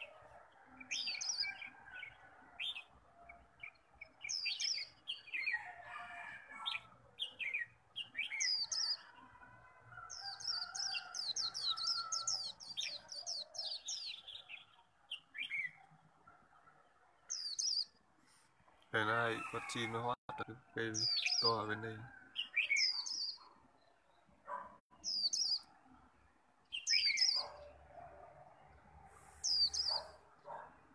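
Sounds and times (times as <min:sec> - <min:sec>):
bird chattering song: 0:03.6 - 0:05.6, 0:06.7 - 0:09.2, 0:10.2 - 0:15.8, 0:20.9 - 0:21.7, 0:22.4 - 0:23.5, 0:25.0 - 0:25.7, 0:26.7 - 0:27.7, 0:29.3 - 0:30.6.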